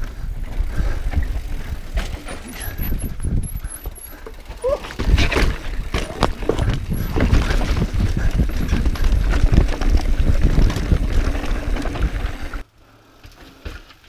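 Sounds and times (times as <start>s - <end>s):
wind buffeting microphone: 0.0s - 12.6s
bike tyres rumbling and rattling: 0.0s - 14.0s
brake squeal: 2.2s - 4.7s
bike knocks on rock: 4.9s - 7.9s.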